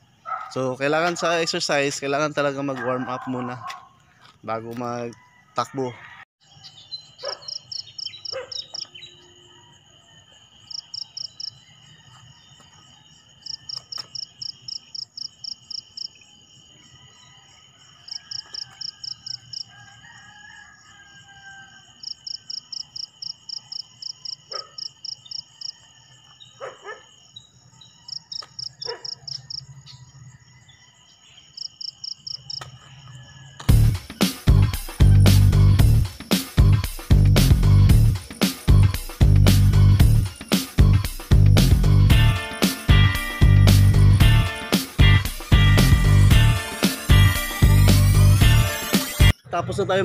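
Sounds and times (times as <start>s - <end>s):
insects trilling: 6.4s - 35.0s
rapid insect chirping pulses: 6.6s - 20.0s, 21.8s - 50.0s.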